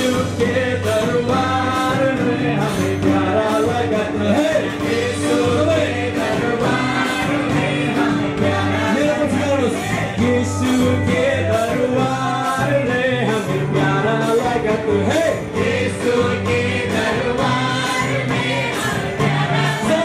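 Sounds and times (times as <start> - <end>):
bass line: 0.0 - 20.0
electric and acoustic guitars: 0.0 - 20.0
women singing into microphones: 4.8 - 9.1, 15.6 - 20.0.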